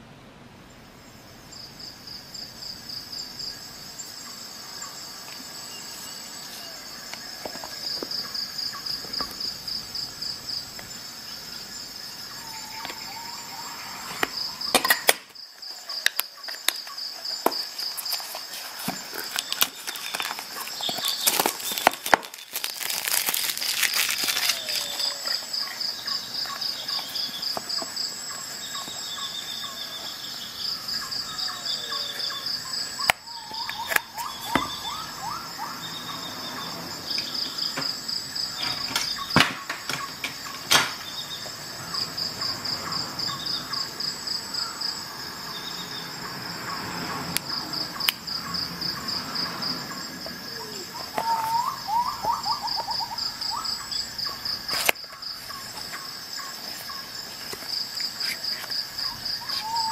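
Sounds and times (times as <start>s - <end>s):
insects trilling: 0.6s - 59.9s
cardboard box rustling: 17.4s - 25.8s.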